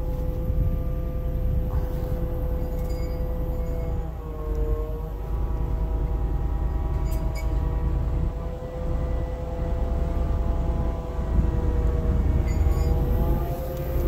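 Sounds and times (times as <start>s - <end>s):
hydraulic whine: 0.0s - 14.0s
low rumble: 0.0s - 14.0s.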